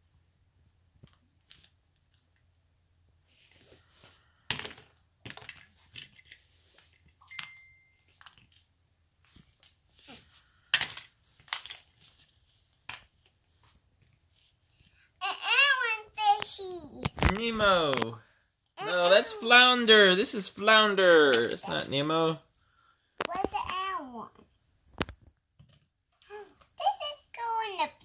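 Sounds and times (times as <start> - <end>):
plastic toys clicking and clattering: 4.5 - 7.2, 10.7 - 12.0
brief high tone: 7.3 - 8.1.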